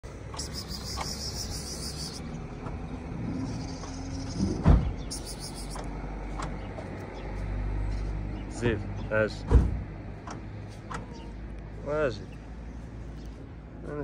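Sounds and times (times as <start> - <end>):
low rumble of road traffic: 0.0 - 14.0
high chirping: 0.3 - 2.3, 3.5 - 5.9.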